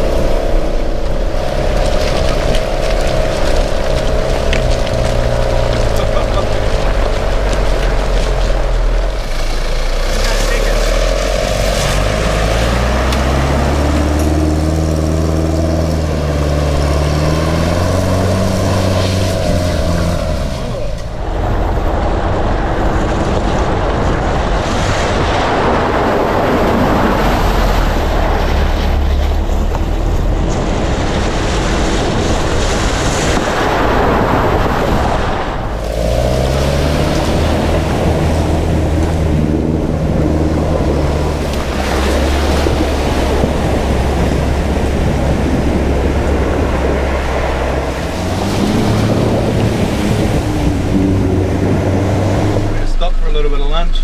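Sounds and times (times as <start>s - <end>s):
engine humming: 0.0s - 54.0s
water splashing: 0.0s - 54.0s
rushing water spray: 24.6s - 54.0s.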